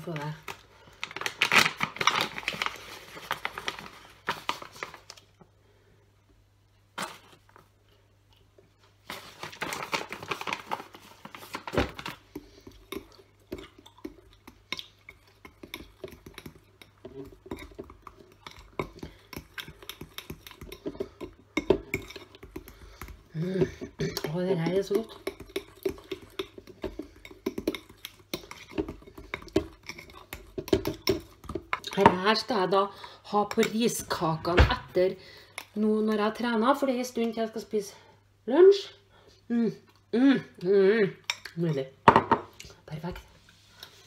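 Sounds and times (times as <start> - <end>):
paper bag crinkling: 9.1 - 12.1
fork stirring in glass bowl: 12.3 - 32.3.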